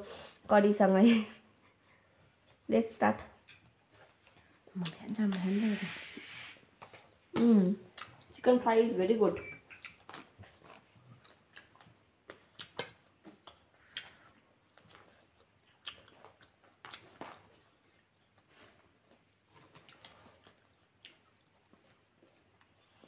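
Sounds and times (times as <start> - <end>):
chewing with mouth smacks: 3.3 - 5.5, 7.9 - 8.4, 9.6 - 23.0.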